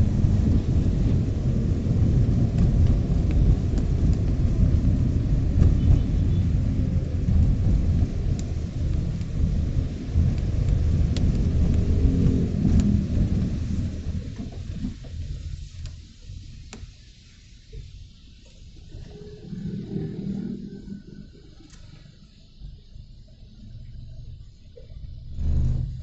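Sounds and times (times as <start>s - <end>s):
car driving on wet road: 0.0s - 26.0s
faint ticks: 14.4s - 17.0s.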